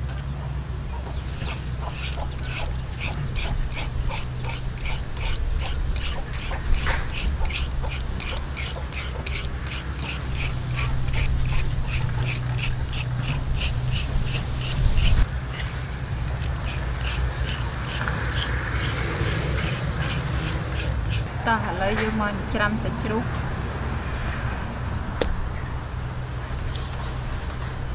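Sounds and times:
peeler scraping a raw carrot: 1.2 - 15.8, 16.4 - 21.3.

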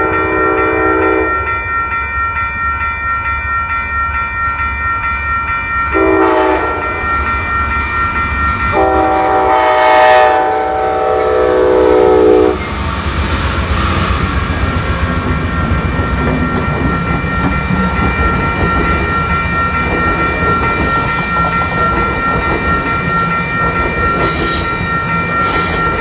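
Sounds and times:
railroad crossing bell ringing: 0.0 - 26.0
train low rumble: 0.0 - 26.0
locomotive air horn blasts: 6.0 - 6.9, 8.8 - 12.6.

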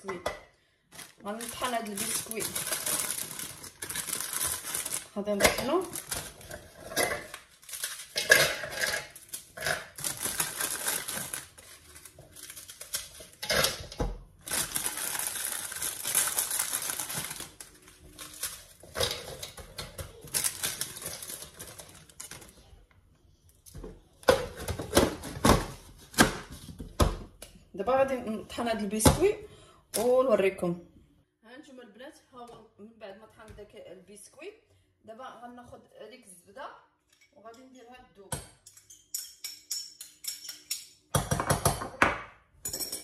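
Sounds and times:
plastic packaging crinkling: 0.9 - 13.4, 14.4 - 22.7.

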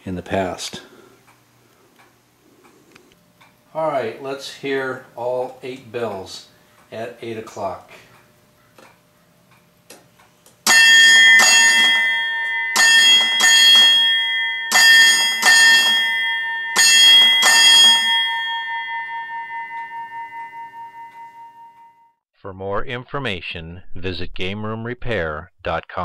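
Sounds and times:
ship's bell ringing: 10.7 - 22.2.

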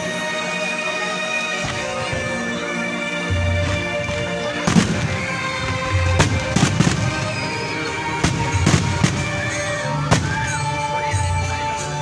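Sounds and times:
music: 0.0 - 12.0.

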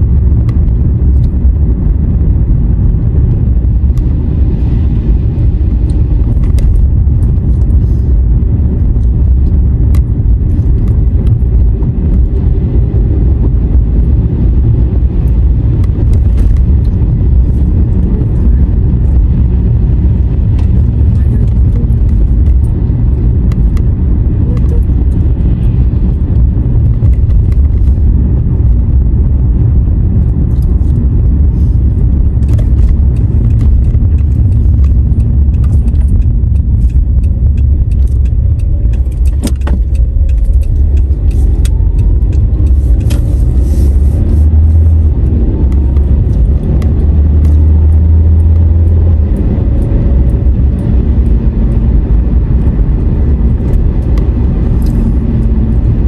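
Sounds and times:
road and engine rumble: 0.0 - 56.0
small clicks and rattles in cabin: 5.8 - 13.6, 15.0 - 28.8, 30.2 - 56.0.

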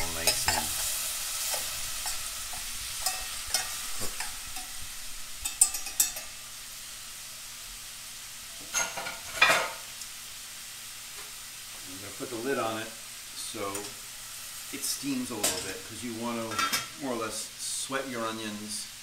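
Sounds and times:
onion sizzling in a saucepan: 0.0 - 19.0
spoon scraping a pan: 0.1 - 4.8, 5.4 - 6.4, 8.6 - 9.8.

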